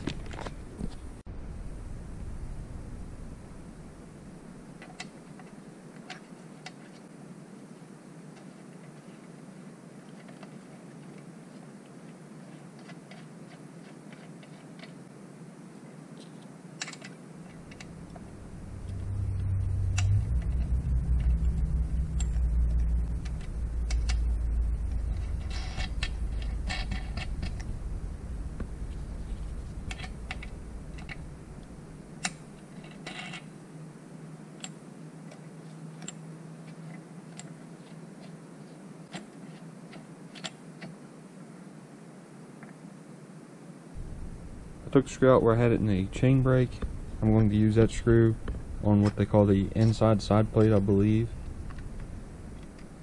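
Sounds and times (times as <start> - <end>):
low rumble: 0.9 - 4.7, 17.6 - 32.6, 44.0 - 53.0.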